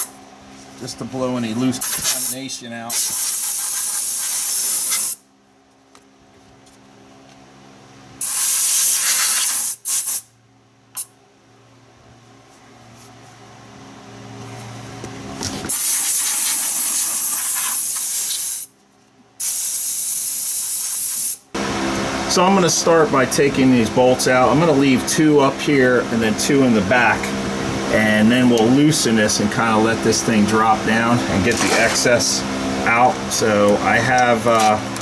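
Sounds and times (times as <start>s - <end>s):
compressed air blow gun hissing: 1.8s - 5.2s, 8.2s - 10.3s, 15.7s - 18.7s, 19.4s - 21.4s.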